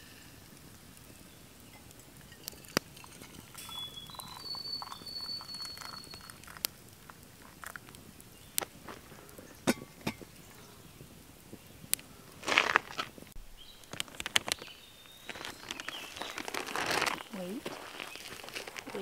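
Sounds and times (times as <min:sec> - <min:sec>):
coffee pouring into mug: 0:01.7 - 0:07.9.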